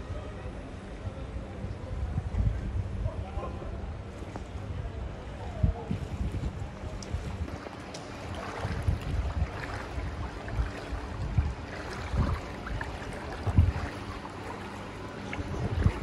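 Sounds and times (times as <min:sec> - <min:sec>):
wading through water: 0:03.2 - 0:16.0.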